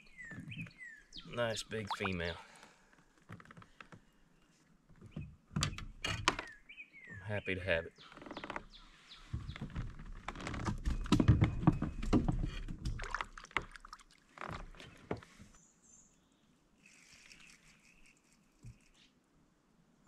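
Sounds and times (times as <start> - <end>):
fish splashing into water: 1.9 - 2.1.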